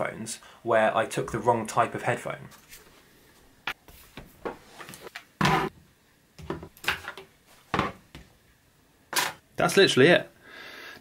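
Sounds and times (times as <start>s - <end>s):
objects knocking on a desk: 7.7s - 8.3s.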